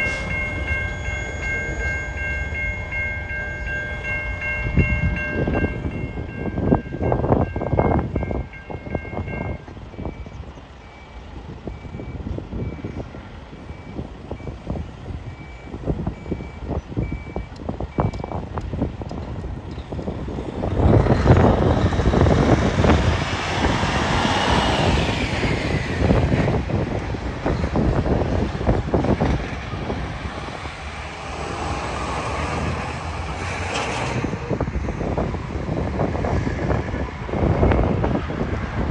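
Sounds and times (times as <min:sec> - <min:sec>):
level crossing alarm beeping: 0:00.0 - 0:13.0, 0:13.6 - 0:18.4
freight train rumbling: 0:00.0 - 0:38.9
wind buffeting microphone: 0:00.0 - 0:38.9.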